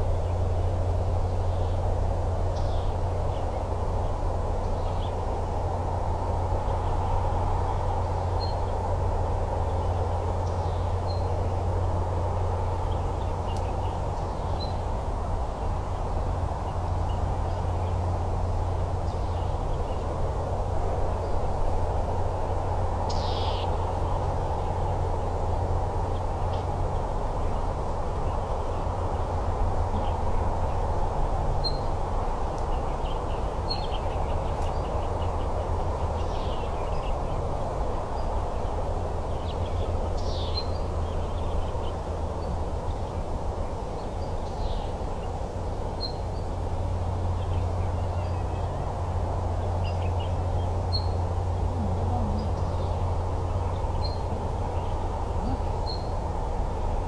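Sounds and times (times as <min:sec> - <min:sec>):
bird calls: 0:23.1 - 0:24.7, 0:31.6 - 0:31.9, 0:49.8 - 0:56.3.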